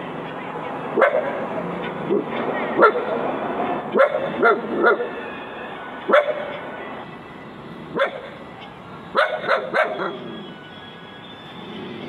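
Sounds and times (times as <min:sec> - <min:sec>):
dog barking: 0:01.0 - 0:01.4, 0:02.1 - 0:03.2, 0:03.9 - 0:05.2, 0:06.1 - 0:06.6, 0:07.9 - 0:08.4, 0:09.1 - 0:10.2.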